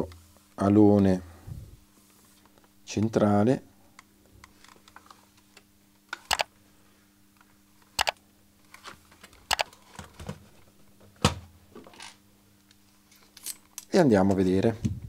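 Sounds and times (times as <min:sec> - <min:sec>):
sharp plastic double clicks: 0:08.0 - 0:08.2, 0:09.5 - 0:09.7.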